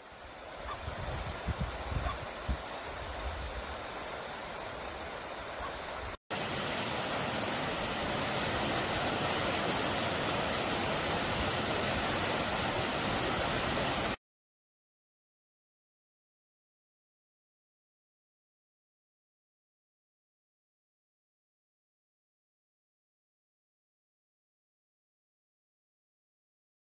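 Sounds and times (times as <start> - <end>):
mountain stream burbling: 0.0 - 14.2
small waterfall cascading over rocks: 0.0 - 14.2
wind bumping microphone: 0.7 - 3.8.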